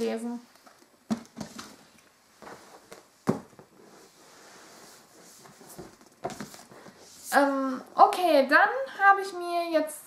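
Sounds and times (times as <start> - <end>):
book pages rustling: 0.6 - 7.2
book knocking: 3.2 - 3.7.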